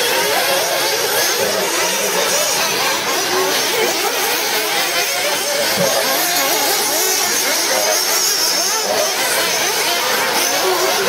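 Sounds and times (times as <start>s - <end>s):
model car motors whining: 0.0s - 11.0s
spectators chatting: 0.0s - 11.0s.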